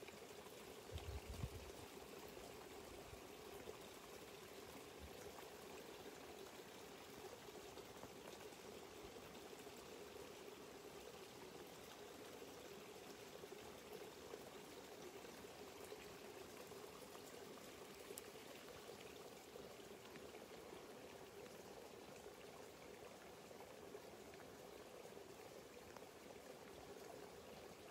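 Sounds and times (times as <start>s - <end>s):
faint water trickling: 0.0s - 27.9s.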